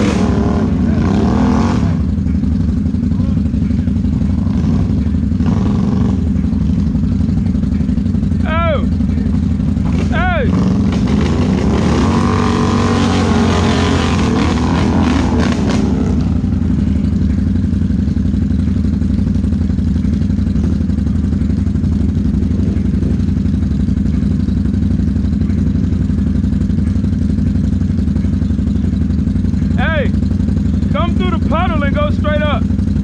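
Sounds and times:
engine revving unevenly: 0:00.0 - 0:17.9
atv engine idling: 0:00.0 - 0:33.0.

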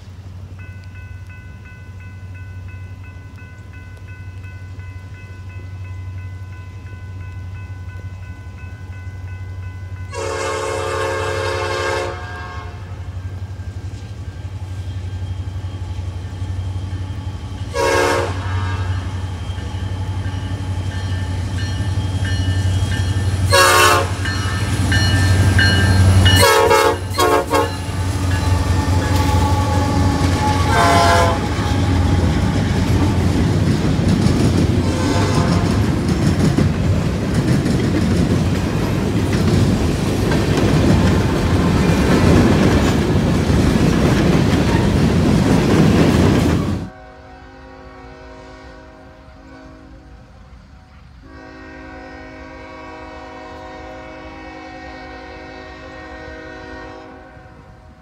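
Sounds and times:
diesel locomotive engines rumbling: 0:00.0 - 0:58.0
locomotive air horn blasts: 0:10.1 - 0:13.1, 0:17.7 - 0:19.2, 0:23.4 - 0:24.6, 0:25.6 - 0:32.9, 0:34.8 - 0:35.9, 0:46.9 - 0:57.9.

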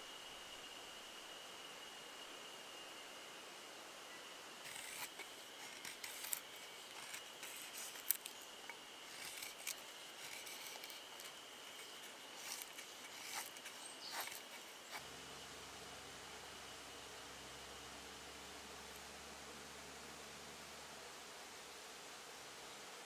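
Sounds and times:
knife scraping wood: 0:04.7 - 0:15.0.

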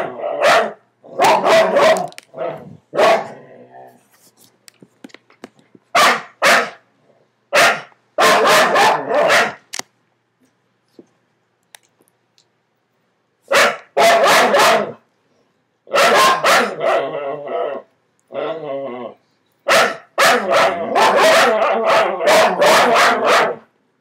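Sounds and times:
dogs barking: 0:00.0 - 0:03.4, 0:05.9 - 0:06.8, 0:07.5 - 0:09.6, 0:13.5 - 0:15.0, 0:15.9 - 0:17.1, 0:19.6 - 0:23.7.

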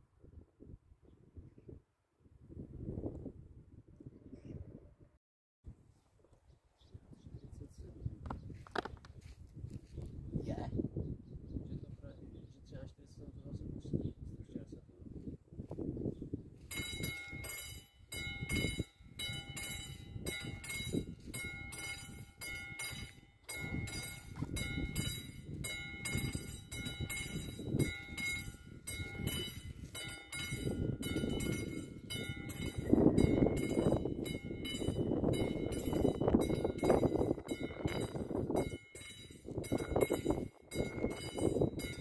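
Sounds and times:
railroad crossing bell ringing: 0:16.7 - 0:42.0.

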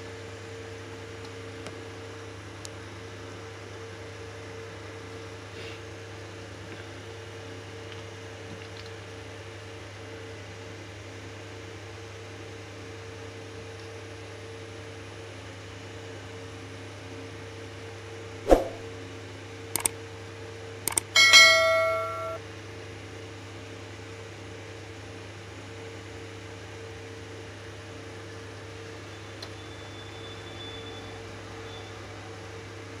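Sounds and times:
sharp clicks: 0:19.8 - 0:20.0, 0:20.9 - 0:21.2
bright bell ding: 0:21.2 - 0:22.4.

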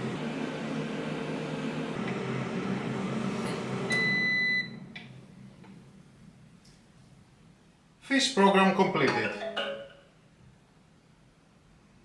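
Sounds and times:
air fryer fan whirring: 0:00.0 - 0:06.2.

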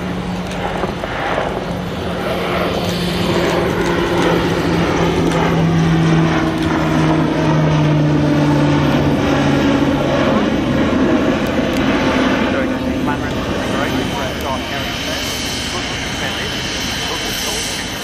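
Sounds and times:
propeller aircraft drone: 0:00.0 - 0:18.0.

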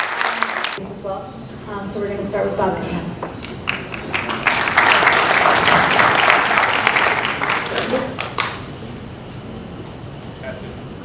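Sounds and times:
audience applauding: 0:00.0 - 0:00.8, 0:03.4 - 0:08.7.

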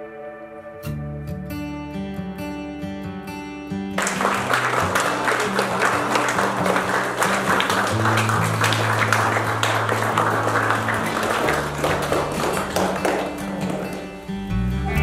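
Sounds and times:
music with held bass notes: 0:00.0 - 0:04.0, 0:11.1 - 0:15.0
guests clapping: 0:04.0 - 0:14.4.

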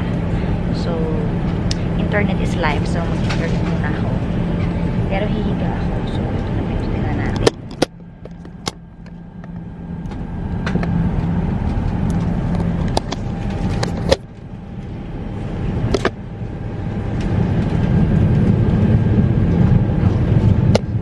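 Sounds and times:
airliner engines and airflow rumble: 0:00.0 - 0:21.0.

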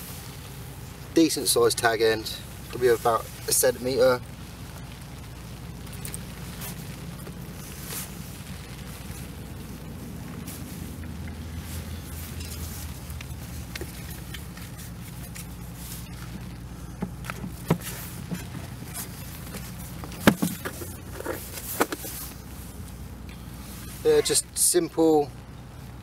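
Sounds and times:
rain jacket rustling: 0:00.0 - 0:24.6
low rumble: 0:04.2 - 0:24.0.

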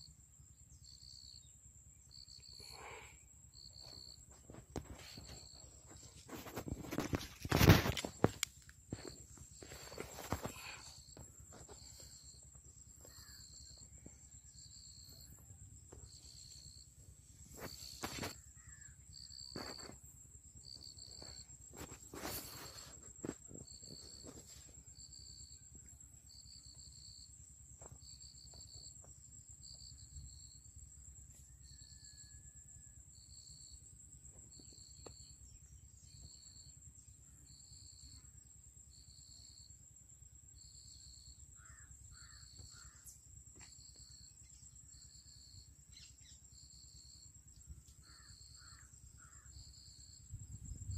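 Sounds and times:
insects chirping: 0:00.0 - 0:50.9
sharp knocks and rustles: 0:03.8 - 0:12.1.

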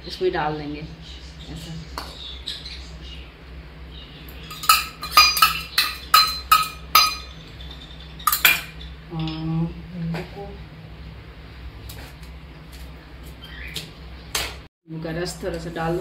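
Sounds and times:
metal spoon tapping pot: 0:04.5 - 0:07.4, 0:08.3 - 0:09.4.

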